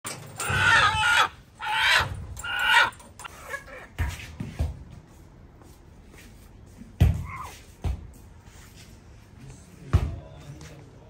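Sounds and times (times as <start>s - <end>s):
rooster squawking: 0.4s - 3.9s.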